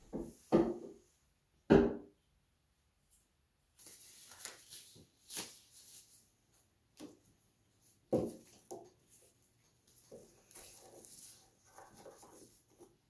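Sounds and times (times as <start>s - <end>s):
rubber gloves rustling and snapping: 3.8s - 6.2s.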